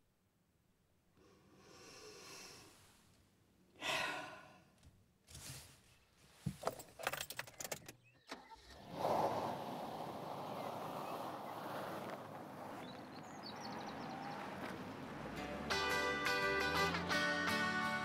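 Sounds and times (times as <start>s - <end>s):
woman sighing: 3.8s - 4.7s.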